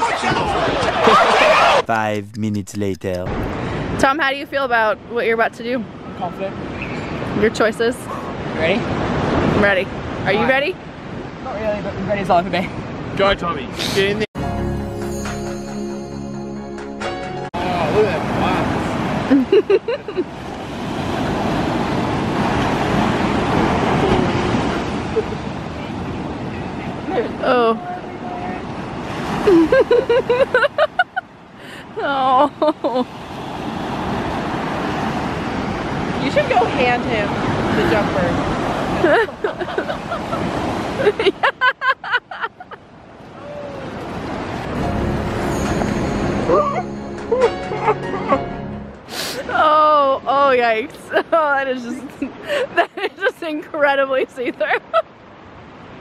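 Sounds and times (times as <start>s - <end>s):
waves breaking on beach: 3.4s - 14.3s, 17.6s - 46.6s, 49.0s - 56.0s
person laughing: 29.4s - 31.2s, 46.5s - 48.5s.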